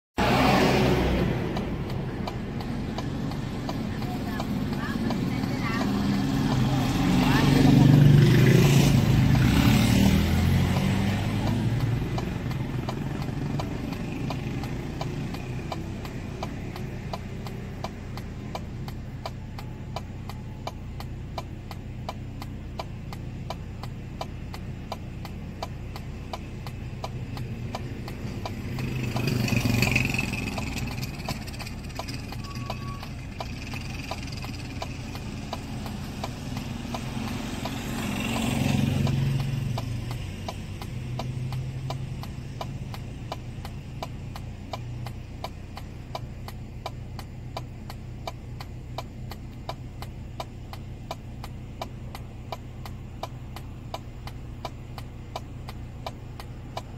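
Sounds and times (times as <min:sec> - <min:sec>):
vehicle passing: 0:00.2 - 0:20.7, 0:22.8 - 0:46.2
car engine idling: 0:00.2 - 0:56.9
indicator flasher ticking: 0:00.2 - 0:56.9.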